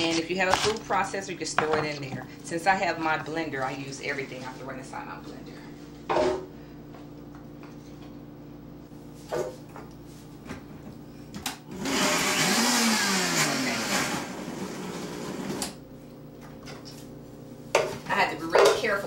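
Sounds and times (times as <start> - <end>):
blender motor running: 11.7 - 15.8.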